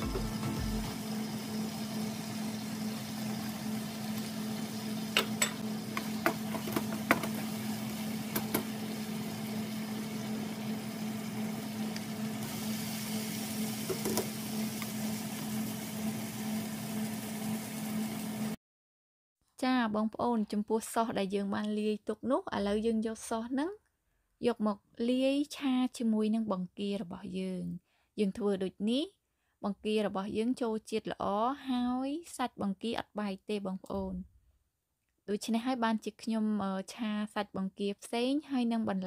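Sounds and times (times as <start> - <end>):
peppers sizzling in a pan: 0.0 - 18.6
spatula knocking against pan: 5.2 - 7.4.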